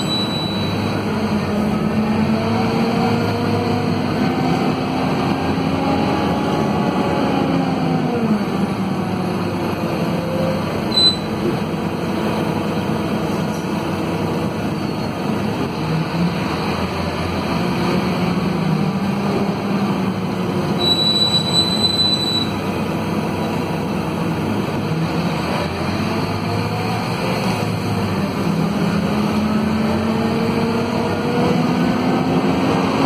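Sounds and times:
brief high squeal: 0:00.0 - 0:00.9, 0:10.9 - 0:11.4, 0:20.8 - 0:22.6
bus diesel engine humming: 0:00.0 - 0:33.0.

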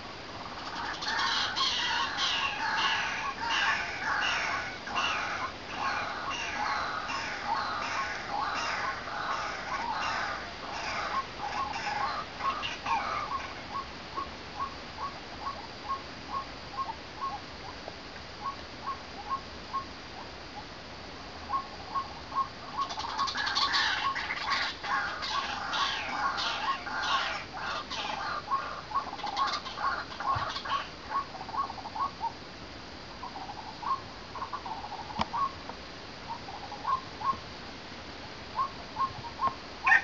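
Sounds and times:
bird chattering: 0:00.4 - 0:13.9, 0:21.5 - 0:32.3.

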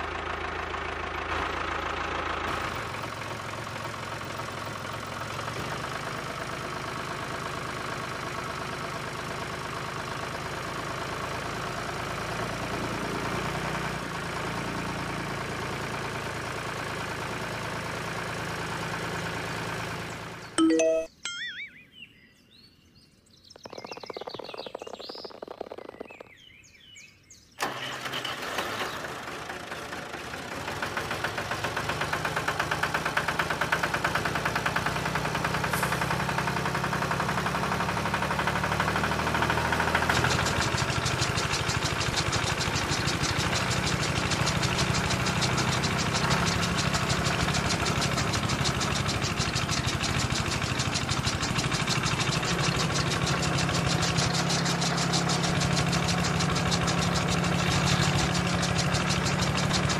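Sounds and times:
tractor engine running: 0:00.0 - 0:20.6, 0:23.6 - 0:26.8, 0:27.6 - 0:59.9.

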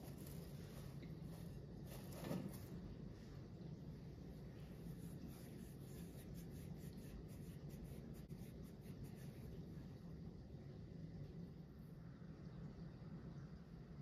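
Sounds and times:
low steady hum: 0:00.0 - 0:14.0
palms rubbing dough: 0:04.7 - 0:09.6.

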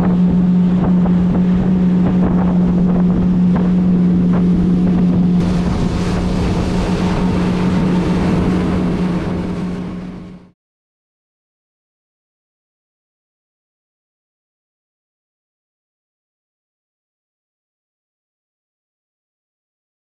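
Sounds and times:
wind buffeting microphone: 0:00.0 - 0:10.4
outboard motor droning: 0:00.0 - 0:10.6
water rushing past: 0:00.0 - 0:10.6.

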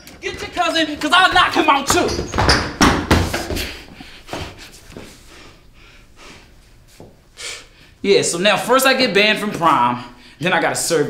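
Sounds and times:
loud thumps and knocks: 0:00.2 - 0:03.8.

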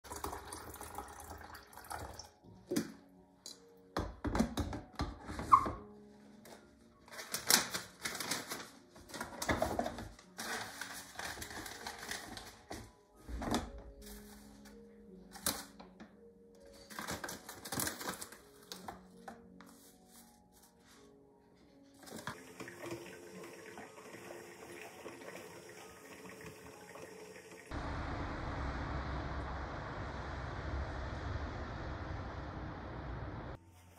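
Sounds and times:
soft background music: 0:00.1 - 0:27.8, 0:33.5 - 0:33.9
paper filter rustling: 0:06.0 - 0:16.0, 0:16.6 - 0:22.4.

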